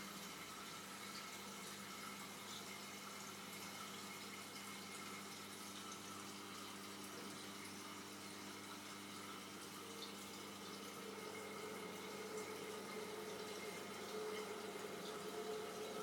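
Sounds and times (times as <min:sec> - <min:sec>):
aquarium water washing: 0:00.0 - 0:16.0.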